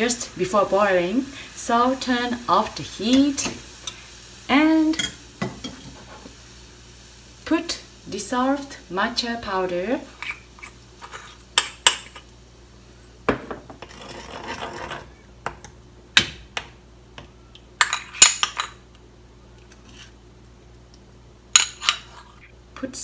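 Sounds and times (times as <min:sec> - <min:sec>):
spoon scraping bowl: 0:10.2 - 0:11.4, 0:13.8 - 0:15.2.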